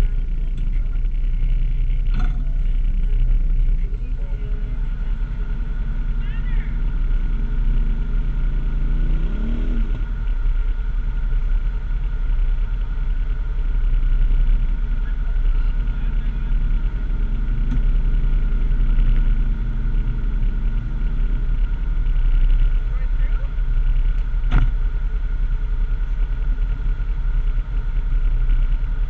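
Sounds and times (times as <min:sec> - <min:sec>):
atv engine idling: 0:00.0 - 0:09.2, 0:09.8 - 0:29.0
faint steady whine: 0:00.0 - 0:29.0.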